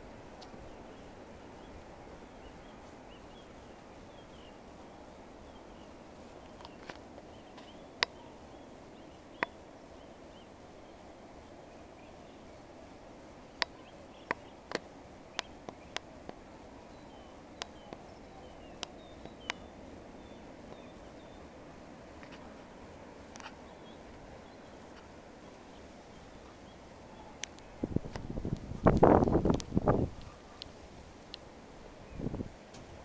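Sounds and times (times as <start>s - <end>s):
steady background noise: 0.0s - 33.0s
distant bird chirps: 0.4s - 12.6s, 13.5s - 22.7s
sharp clicks: 27.4s - 29.7s.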